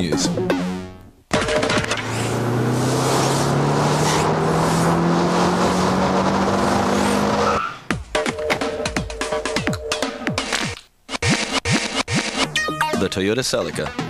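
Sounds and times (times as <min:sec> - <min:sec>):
car engine accelerating: 0:01.3 - 0:07.9
electronic music: 0:08.2 - 0:14.0.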